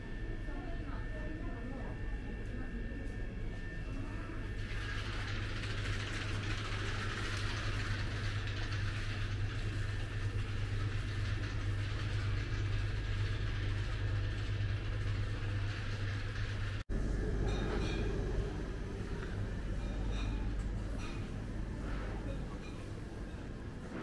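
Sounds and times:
low hum: 9.0s - 24.0s.

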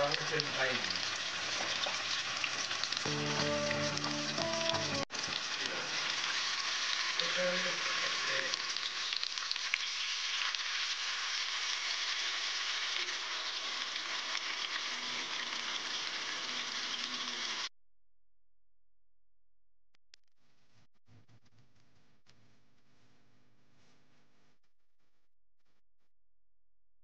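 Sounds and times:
chicken sizzling in hot oil: 0.0s - 17.7s.

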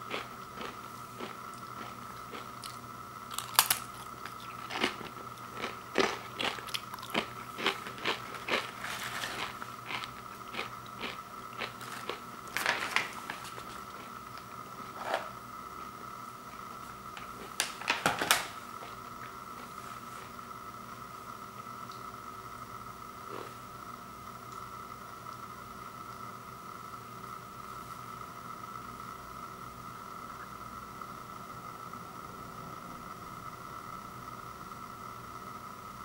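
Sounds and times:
chips being chewed crunching: 0.0s - 15.1s.

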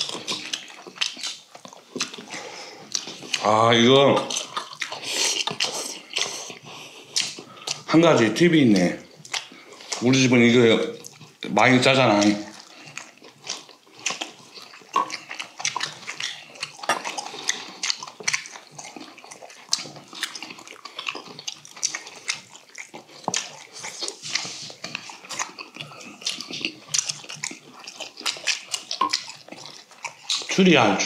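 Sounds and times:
chewing and lip-smacking: 0.0s - 31.0s.

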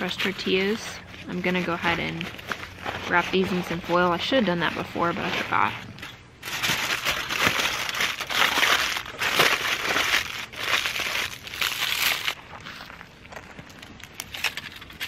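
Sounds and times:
aluminium foil crinkling: 0.0s - 15.0s.

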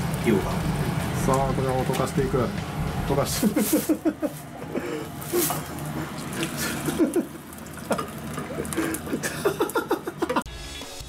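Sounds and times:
liquid pouring and splashing into pot: 5.1s - 9.6s.

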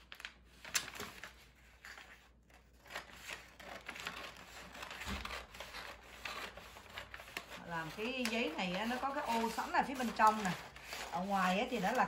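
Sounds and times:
paper crinkling: 0.0s - 12.0s
scissors snipping paper: 2.7s - 12.0s.

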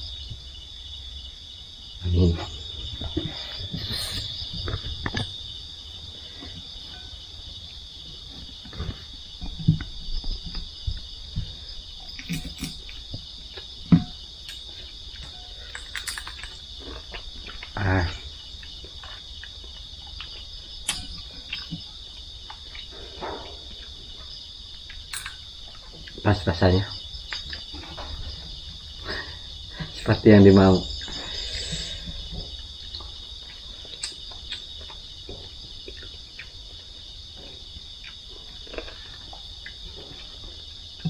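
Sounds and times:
night insects chorus: 0.0s - 41.0s
dishes clicking and knocking: 25.1s - 25.4s.

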